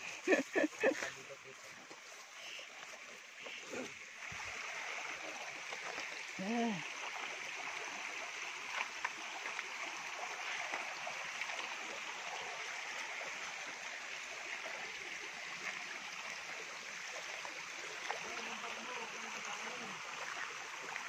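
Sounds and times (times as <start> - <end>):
creek water rushing over rocks: 0.0 - 21.0.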